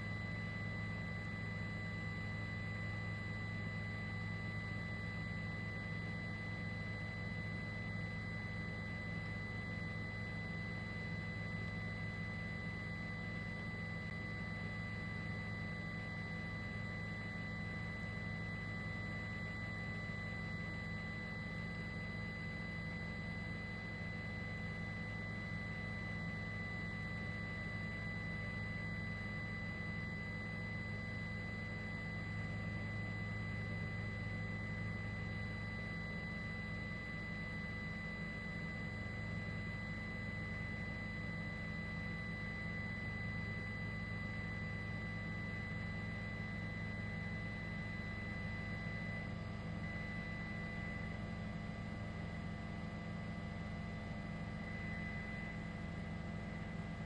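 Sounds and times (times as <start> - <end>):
thin high whine: 0.0 - 57.0.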